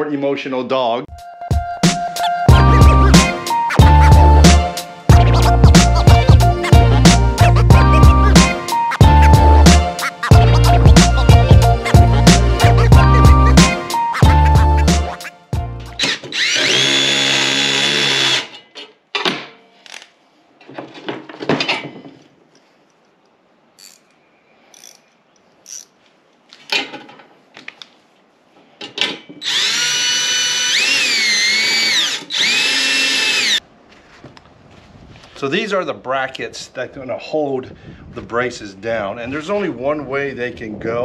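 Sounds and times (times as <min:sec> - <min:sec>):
power drill whining: 0:16.0 - 0:18.6, 0:29.4 - 0:33.6
hardware and tools clinking: 0:18.3 - 0:27.9.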